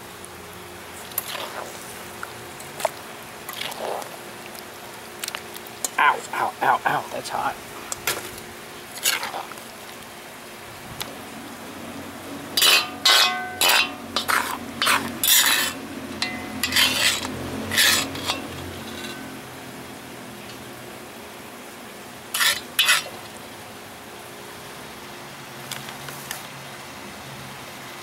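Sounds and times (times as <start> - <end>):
low hiss from wok: 0.0 - 28.0
utensils scraping a wok: 1.0 - 2.0, 8.9 - 9.6, 12.5 - 19.4, 22.3 - 23.3.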